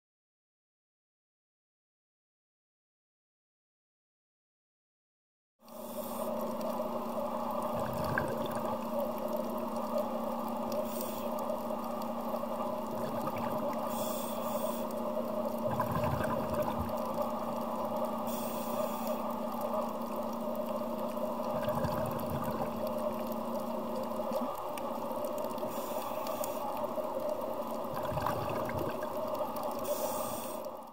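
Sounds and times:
underwater hum: 5.6s - 30.9s
water rushing: 7.4s - 30.7s.

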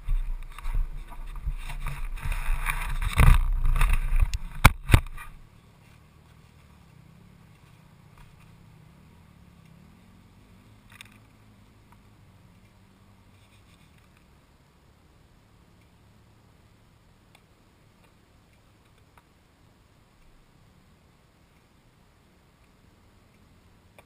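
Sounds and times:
wind buffeting camera: 0.0s - 5.5s.

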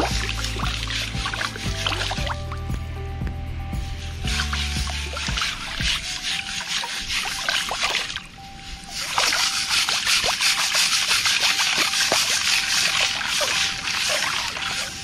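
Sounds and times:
gravel washing in a mesh sieve: 0.0s - 2.4s, 4.2s - 15.0s
water sloshing and splashing: 0.0s - 2.6s, 4.2s - 15.0s.

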